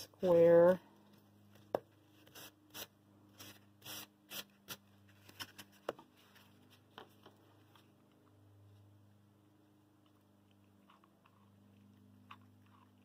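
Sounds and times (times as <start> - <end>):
faint scrapes and rustles: 4.9 - 8.0.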